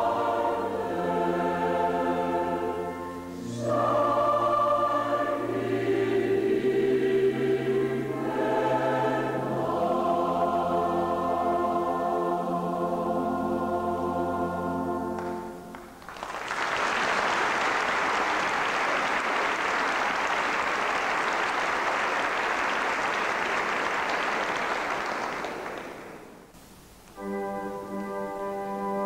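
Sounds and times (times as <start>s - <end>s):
choir and organ chord: 0.0s - 15.7s, 27.2s - 29.0s
organ sustained chord: 0.0s - 15.8s, 27.1s - 29.0s
audience applause: 15.7s - 26.5s.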